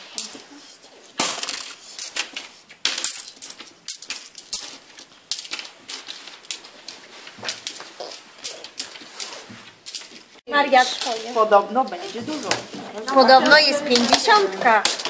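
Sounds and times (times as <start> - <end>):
coins clinking on wooden table: 1.2 - 10.2, 10.8 - 12.7, 13.8 - 15.0.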